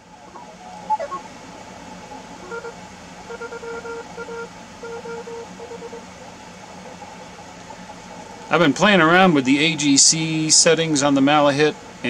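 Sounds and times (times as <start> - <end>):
steady hiss of band noise: 0.0 - 12.0
morse code tone: 2.4 - 6.1.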